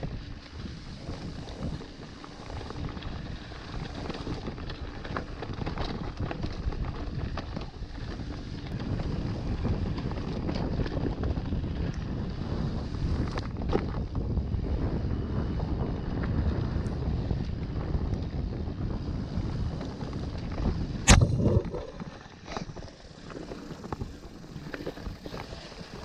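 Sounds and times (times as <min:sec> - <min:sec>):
bike tyres rumbling over dirt: 0:00.0 - 0:26.0
wind buffeting microphone: 0:05.4 - 0:26.0.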